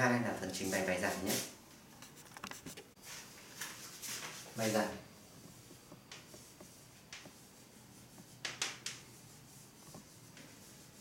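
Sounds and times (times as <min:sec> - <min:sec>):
chalk tapping on blackboard: 0:05.4 - 0:11.0.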